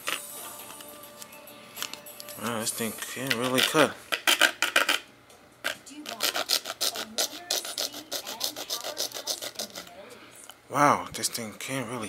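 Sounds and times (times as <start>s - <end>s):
serrated knife sawing through plastic: 6.1s - 9.9s.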